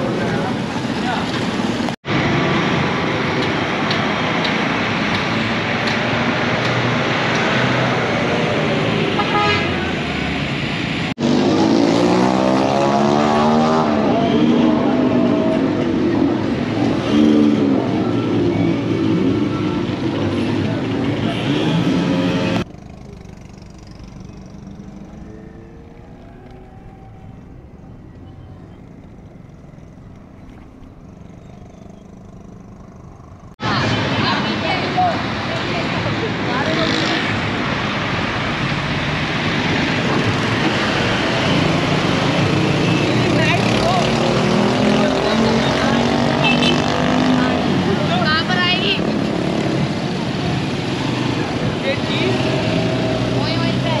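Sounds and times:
distant traffic rumble: 0.0s - 54.0s
vehicle engines running: 0.0s - 54.0s
car horn toot: 9.2s - 9.9s, 46.4s - 46.9s
engine droning: 11.1s - 33.8s.

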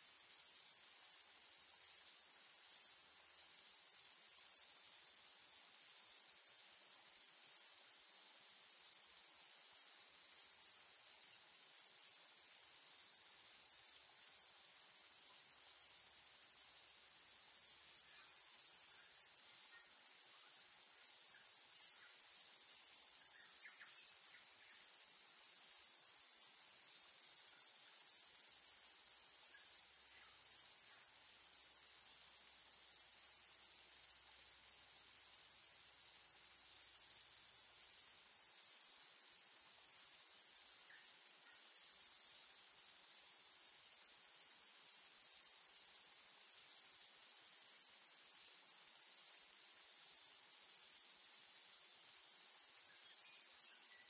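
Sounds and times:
faint bird chirps: 23.1s - 24.9s.

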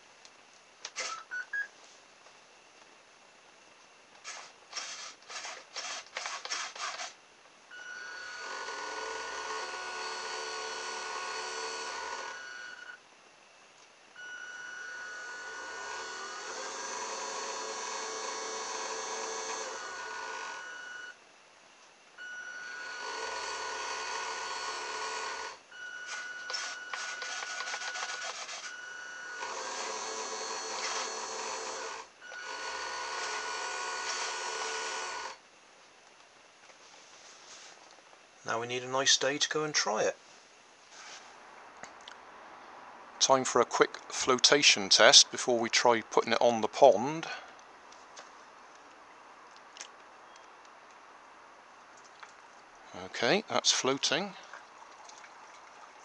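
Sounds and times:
small electric motor whining: 4.2s - 13.0s, 14.2s - 21.2s, 22.2s - 35.4s.

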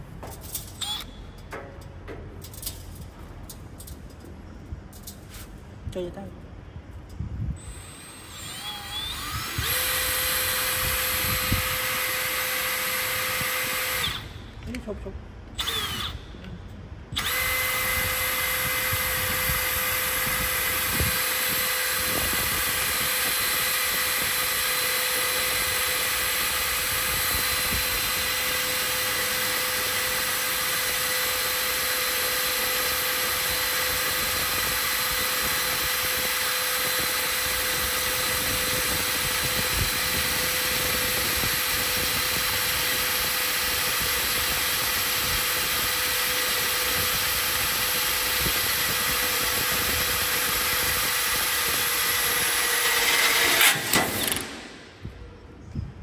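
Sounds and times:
drill bit grinding metal: 7.6s - 14.3s, 17.2s - 54.5s
drill motor whine: 7.6s - 14.5s, 15.6s - 16.3s, 17.1s - 54.6s.

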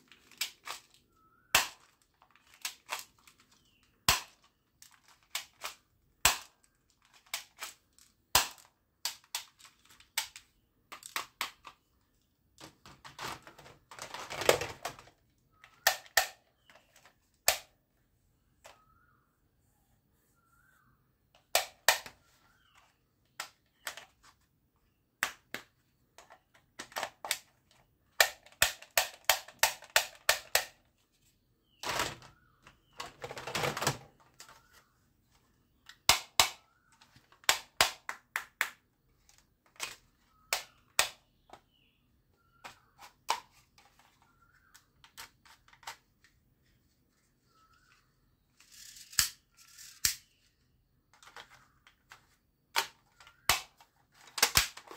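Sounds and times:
plastic toy guns clacking: 0.1s - 11.9s, 12.6s - 17.7s, 21.4s - 22.7s, 23.3s - 24.2s, 25.2s - 30.8s, 35.8s - 41.7s, 51.1s - 54.9s.

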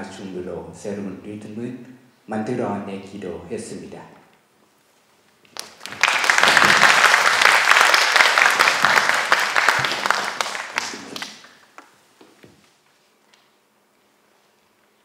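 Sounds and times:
audience applauding: 5.6s - 11.8s.

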